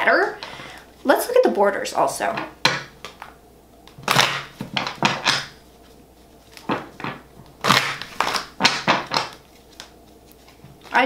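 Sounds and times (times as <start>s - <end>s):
cards shuffling and rustling: 4.1s - 11.0s.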